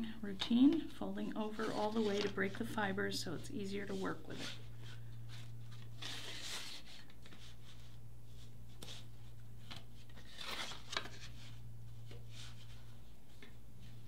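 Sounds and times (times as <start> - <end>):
steady low hum: 0.0 - 14.0
hands folding cardboard: 3.8 - 14.0.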